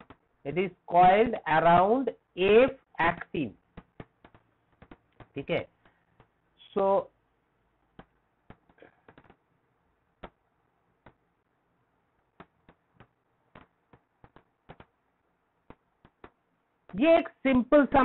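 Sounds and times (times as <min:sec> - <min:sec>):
stylus tapping on tablet: 0:00.0 - 0:00.3, 0:03.7 - 0:06.4, 0:07.9 - 0:09.5, 0:10.1 - 0:11.4, 0:12.2 - 0:17.0.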